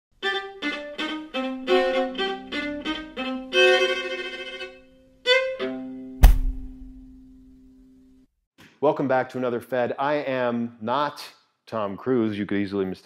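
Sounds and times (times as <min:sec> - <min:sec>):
fiddle melody: 0:00.1 - 0:06.9
deep stamp thump: 0:06.2 - 0:07.0.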